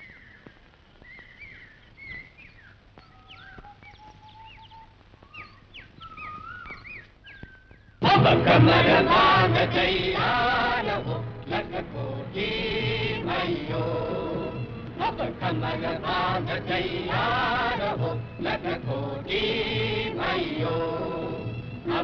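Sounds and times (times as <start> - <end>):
birds chirping and whistling: 0.0 - 8.0
chorus of voices chanting: 8.0 - 22.0.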